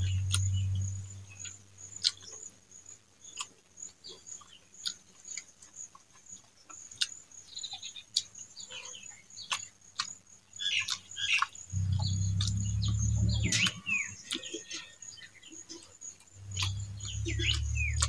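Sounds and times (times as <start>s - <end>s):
low hum: 0.0s - 1.4s, 11.7s - 14.4s, 16.4s - 18.0s
mouth clicks: 0.1s - 0.6s, 9.4s - 14.9s, 16.2s - 18.0s
wet chewing and lip smacks: 0.2s - 0.6s, 3.3s - 7.2s, 9.4s - 14.9s, 15.7s - 18.0s
faint high whine: 11.7s - 14.5s.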